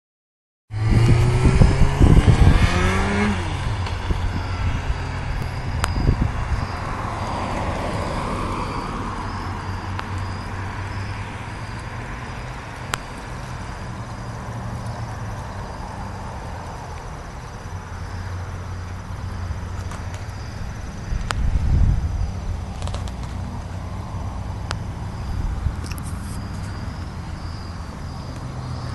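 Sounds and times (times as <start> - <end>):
motorcycle engine: 0.7 - 6.9
insects chirping: 2.6 - 28.9.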